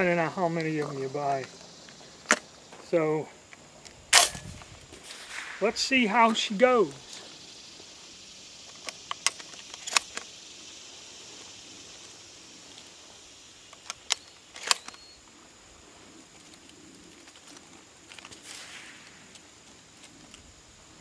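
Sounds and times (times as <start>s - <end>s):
steady high hiss: 0.0s - 21.0s
shotgun metallic clicks: 3.8s - 4.6s, 8.7s - 10.3s, 13.7s - 15.1s.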